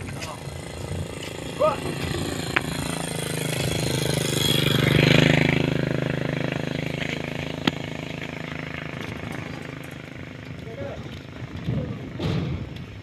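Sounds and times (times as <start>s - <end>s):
vehicle engine passing: 0.0s - 13.0s.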